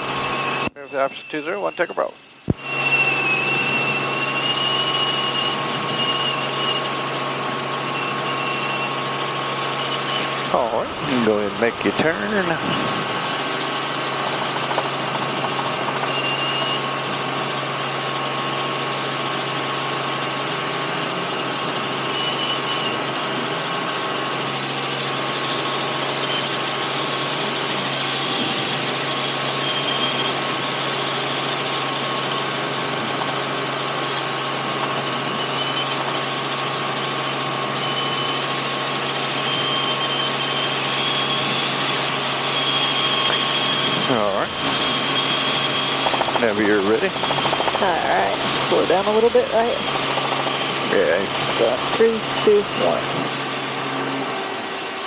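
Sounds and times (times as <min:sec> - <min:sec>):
short high tones: 0:00.0 - 0:07.0
helicopter engine and rotors drone: 0:00.0 - 0:55.0.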